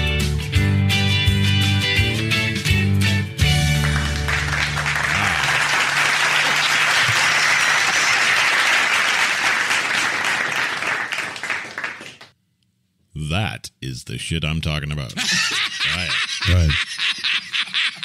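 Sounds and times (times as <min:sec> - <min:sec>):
crowd applauding: 0:03.4 - 0:12.3.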